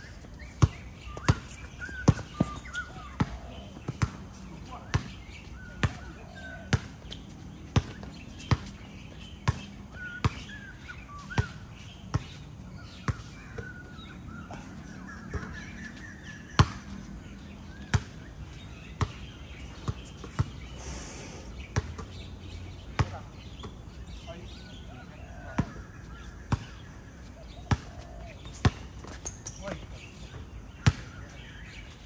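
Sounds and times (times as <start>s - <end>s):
basketball bouncing on court: 4.9s - 5.2s, 5.8s - 6.1s, 9.4s - 10.4s, 16.6s - 16.9s, 17.9s - 18.2s, 23.0s - 23.7s.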